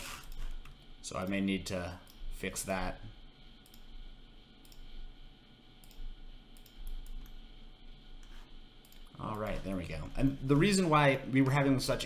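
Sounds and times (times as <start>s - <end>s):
faint low hum: 0.0s - 12.0s
computer mouse clicking: 0.1s - 1.4s, 3.6s - 3.9s, 4.6s - 4.9s, 5.8s - 7.4s, 8.2s - 9.5s.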